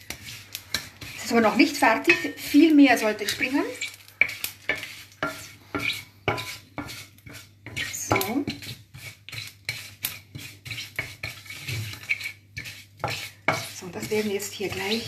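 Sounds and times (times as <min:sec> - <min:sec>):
seeds toasting in hot oil: 0:00.0 - 0:15.0
wooden spatula scraping steel pan: 0:00.0 - 0:15.0.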